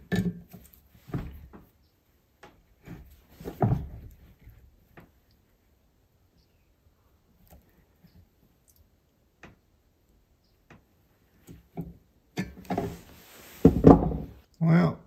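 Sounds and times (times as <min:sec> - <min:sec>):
knocks and handling noise: 0:00.0 - 0:05.2, 0:10.6 - 0:14.4.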